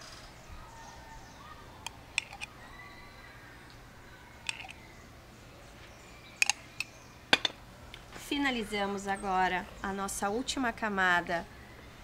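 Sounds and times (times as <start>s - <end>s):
faint room hum: 0.0s - 12.0s
metal spoon clicking on glass jar: 2.2s - 2.5s, 4.5s - 4.8s.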